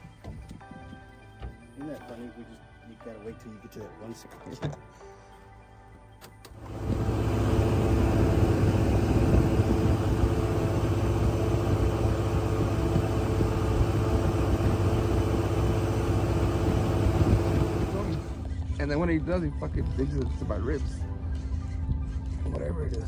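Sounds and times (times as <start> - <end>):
engine droning: 6.5 - 18.6.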